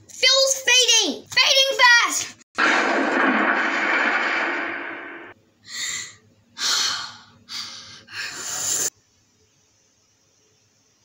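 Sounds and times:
loud rushing noise: 2.6 - 5.4.

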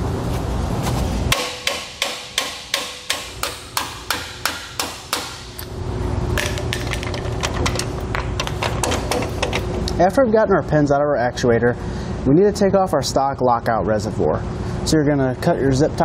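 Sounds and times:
hammer striking steel pin: 1.3 - 5.6.

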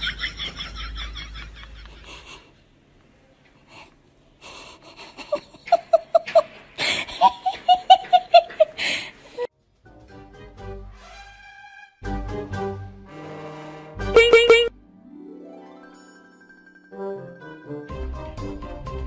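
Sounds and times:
person laughing: 0.0 - 2.5, 4.4 - 9.5.

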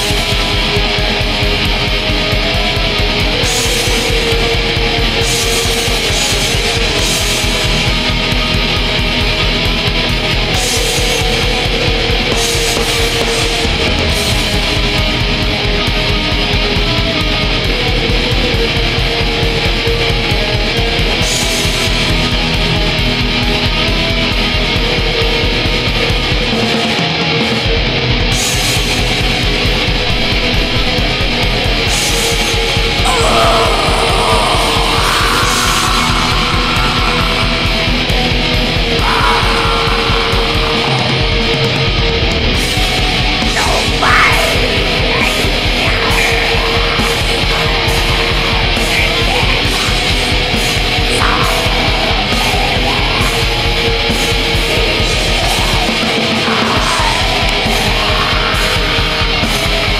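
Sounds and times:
fast drumming: 0.0 - 26.4, 28.3 - 59.9
distorted electric guitar: 0.0 - 59.9.

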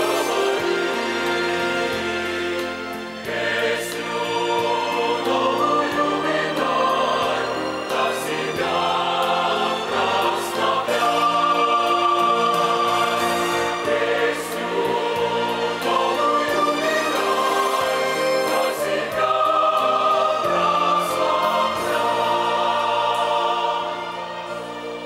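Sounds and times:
mixed choir singing a hymn: 0.0 - 25.0.

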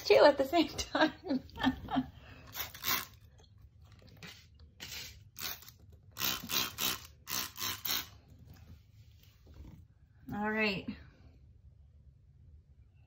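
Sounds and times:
spray bottle hissing squirts: 4.2 - 8.1.

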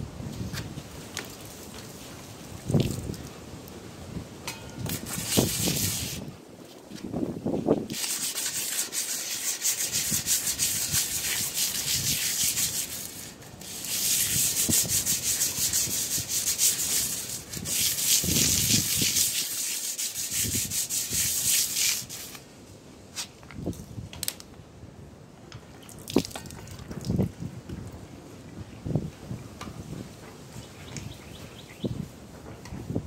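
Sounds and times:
sandpaper scrubbing metal: 4.9 - 6.3, 7.9 - 22.4.

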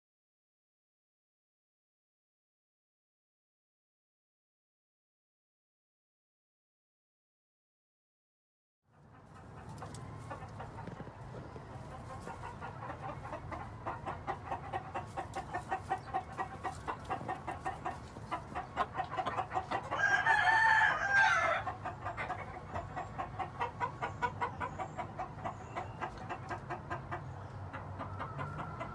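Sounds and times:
rooster clucking: 8.9 - 28.9
rooster crowing: 19.8 - 21.8, 28.0 - 28.9.

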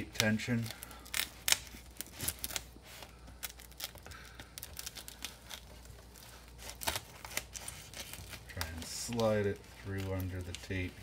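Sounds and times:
tape and plastic wrap crinkling: 0.0 - 11.0.

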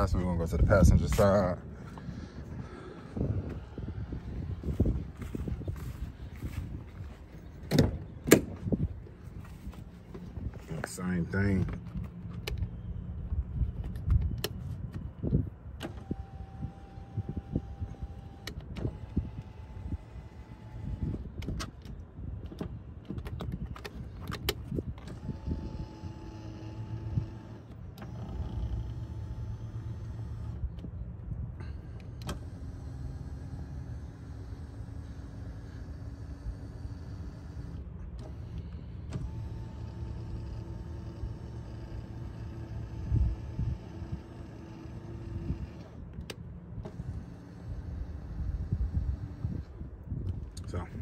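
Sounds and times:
seat motor whirring: 0.0 - 51.0.

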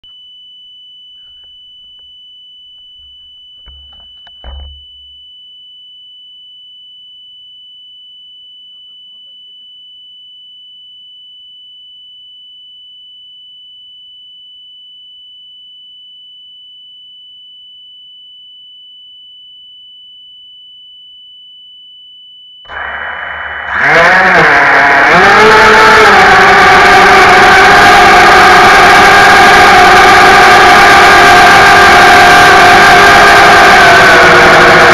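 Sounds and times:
high-pitched electronic tone: 22.7 - 34.9.

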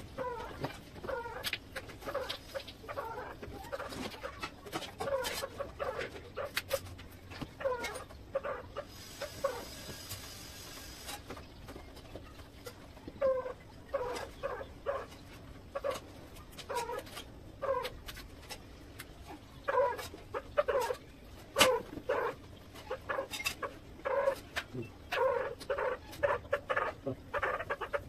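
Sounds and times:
animal yelping: 21.6 - 28.0.

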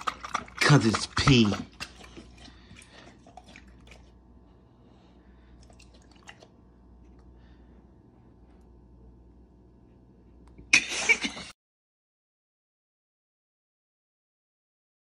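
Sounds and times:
dog lapping water: 0.0 - 4.2, 5.4 - 7.3.

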